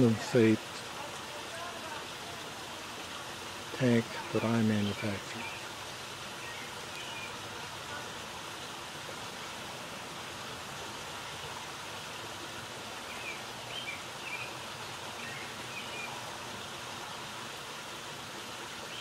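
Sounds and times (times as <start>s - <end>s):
outdoor background hiss: 0.0s - 19.0s.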